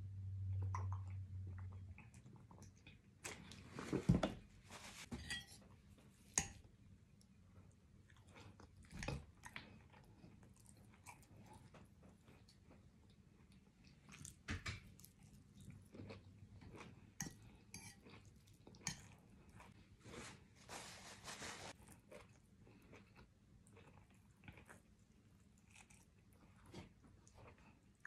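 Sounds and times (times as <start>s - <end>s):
person chewing crunchy food: 8.0s - 20.3s, 21.7s - 28.0s.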